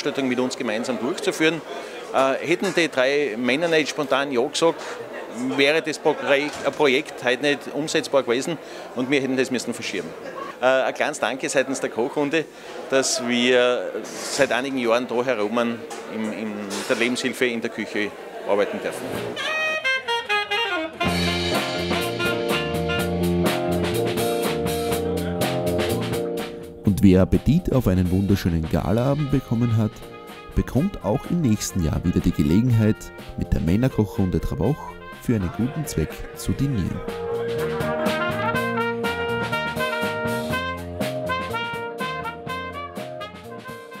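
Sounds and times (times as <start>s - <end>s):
band with guitar and drums: 19.2s - 26.8s, 37.0s - 44.0s
background music with a beat: 21.0s - 27.0s, 37.0s - 44.0s.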